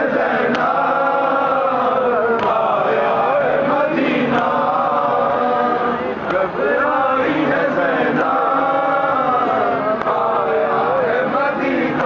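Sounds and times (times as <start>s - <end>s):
crowd of men chanting: 0.0s - 12.0s
lead reciter: 0.0s - 12.0s.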